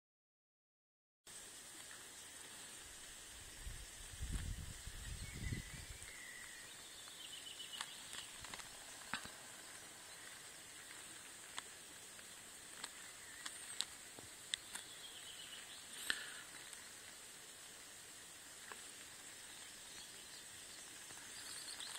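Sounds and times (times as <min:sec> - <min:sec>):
faint steady hiss: 0:01.3 - 0:21.9
small ticks: 0:01.6 - 0:04.7, 0:06.0 - 0:21.9
faint high chirps: 0:03.2 - 0:17.6, 0:18.8 - 0:21.9
wind rumble on microphone: 0:03.4 - 0:06.2.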